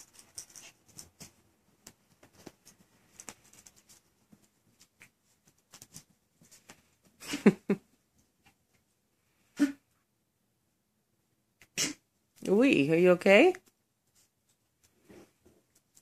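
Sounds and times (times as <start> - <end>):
puppies scratching and clicking: 0.0 - 6.8, 15.6 - 16.0
puppy short loud noises: 11.6 - 12.0.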